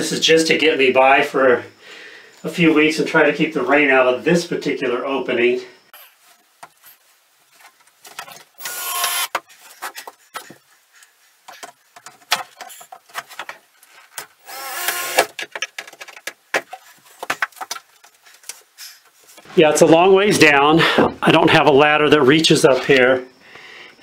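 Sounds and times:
cordless drill driving screws: 8.6 - 9.4, 14.4 - 15.3
handling clicks and knocks: 15.2 - 18.6.

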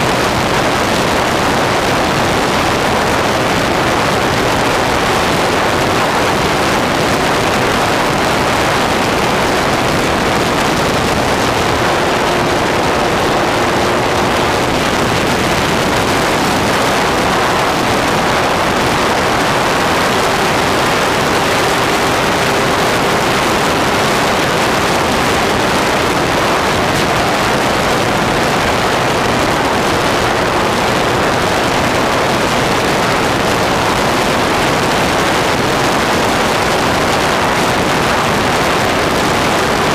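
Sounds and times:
electric motor and propeller tone: 0.0 - 31.6
loud wind rush: 0.0 - 39.9.

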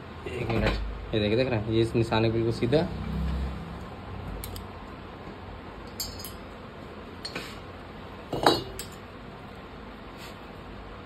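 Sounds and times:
metal engine parts clinking: 5.8 - 6.5.

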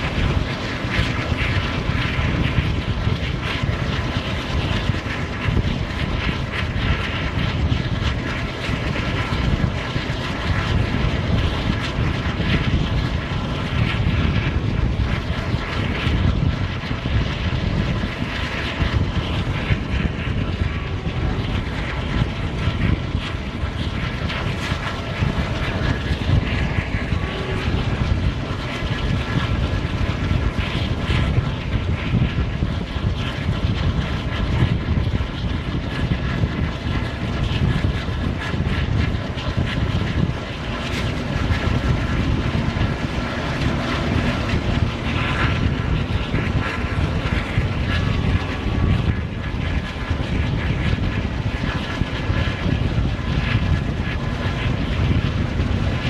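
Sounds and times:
diesel locomotive engine drone: 0.0 - 56.0
rushing air: 0.0 - 56.0
train wheels rumbling on rails: 0.0 - 56.0.

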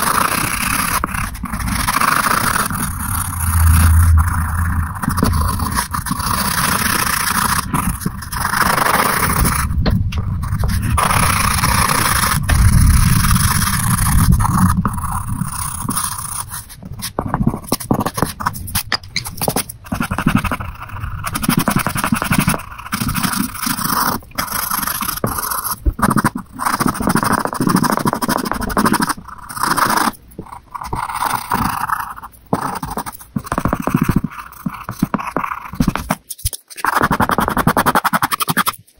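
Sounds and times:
pencil scratching on paper: 0.0 - 38.9.

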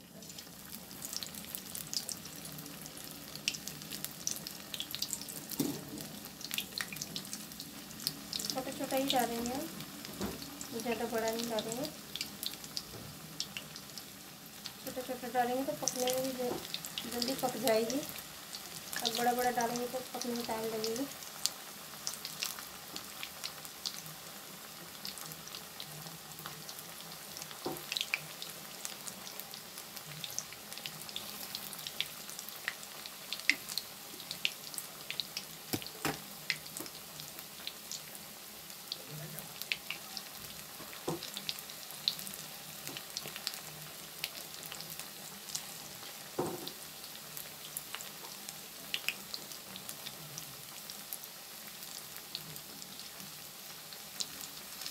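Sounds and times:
food deep-frying in oil: 0.0 - 54.9.

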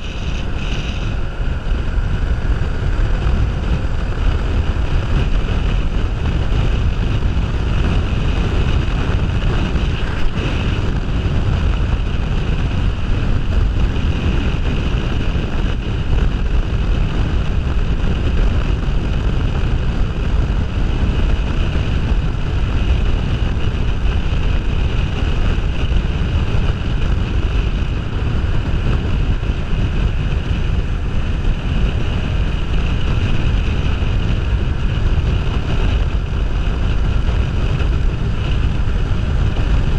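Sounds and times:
motorcycle engine and road drone: 0.0 - 39.9
wind rushing over microphone: 0.0 - 39.9.

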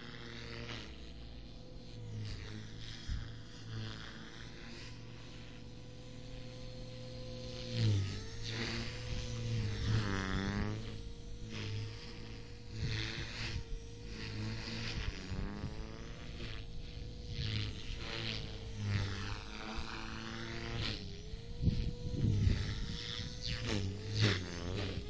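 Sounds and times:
rc helicopter motor whine: 0.0 - 25.0
rotor swish: 6.3 - 25.0
wind buffeting microphone: 21.5 - 25.0.

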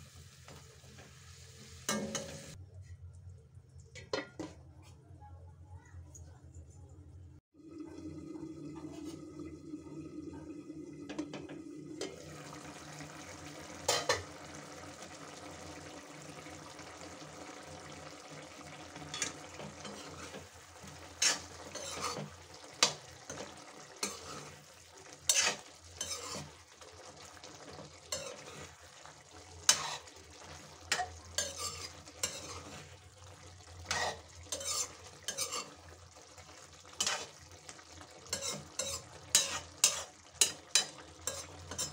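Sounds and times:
food sizzling in a pan: 0.0 - 2.6, 7.6 - 41.9
metal spoon scraping a pan: 13.9 - 14.2, 19.0 - 26.6, 28.1 - 28.8, 29.6 - 33.0, 33.8 - 36.0, 36.9 - 37.4, 38.2 - 41.9.

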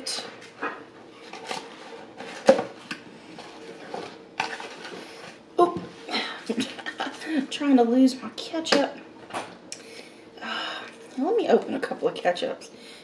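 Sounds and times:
faint steady hum: 0.0 - 13.0
papery rustling and scraping: 1.2 - 5.4.

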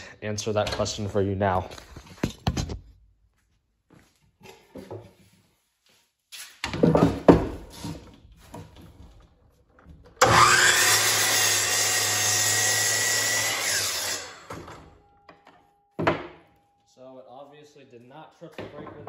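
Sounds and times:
miter saw whining and cutting wood: 10.2 - 15.0.

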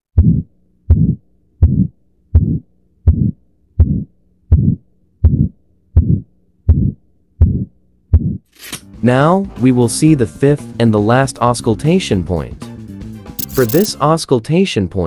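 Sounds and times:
heartbeat through stethoscope: 0.1 - 8.4.

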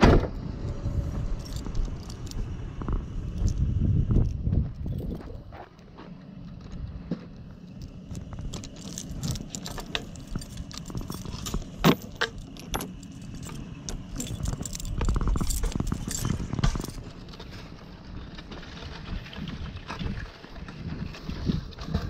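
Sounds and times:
low rumble: 0.0 - 22.0
metal chain rattling on wood: 1.2 - 2.5, 7.5 - 20.0
loud chain clank: 8.1 - 17.2.

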